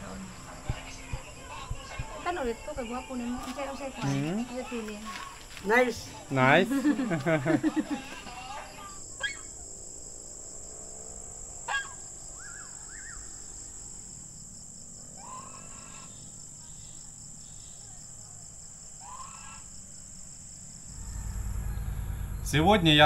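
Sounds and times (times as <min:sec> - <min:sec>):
insects chirring: 0:00.0 - 0:23.0.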